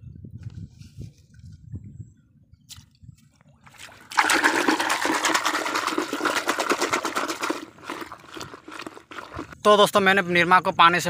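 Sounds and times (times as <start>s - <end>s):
hand sloshing water in bucket: 3.4s - 9.6s.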